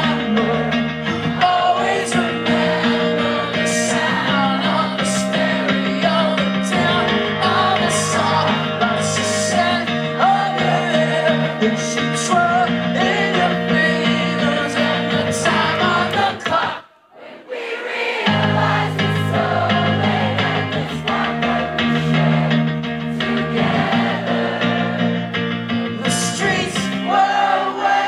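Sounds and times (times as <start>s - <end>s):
person singing: 0.0s - 16.8s, 25.9s - 28.0s.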